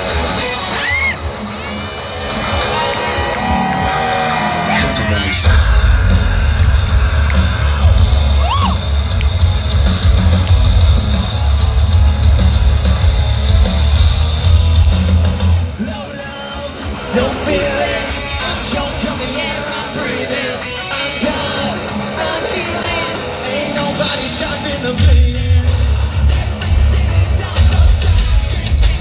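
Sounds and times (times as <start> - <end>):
live rock band playing: 0.0 - 29.0
person singing: 4.6 - 8.8.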